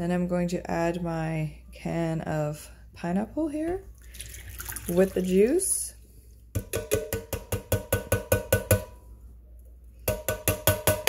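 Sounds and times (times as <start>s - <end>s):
metal can knocking on glass jar: 6.6s - 8.9s.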